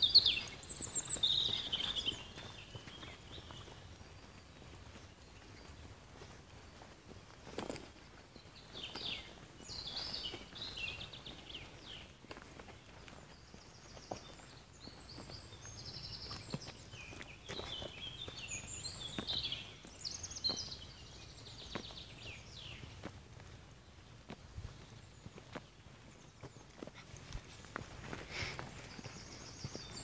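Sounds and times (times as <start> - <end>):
songbirds singing trilled phrases: 0.0 - 6.8, 8.4 - 12.2, 12.8 - 23.1, 28.4 - 30.0
footsteps on dirt track: 0.0 - 30.0.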